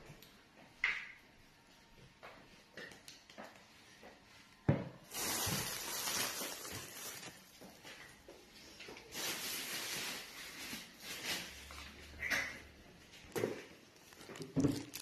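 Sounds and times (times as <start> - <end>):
plastic bags crinkling: 5.1 - 7.8, 9.0 - 12.0, 14.0 - 15.0.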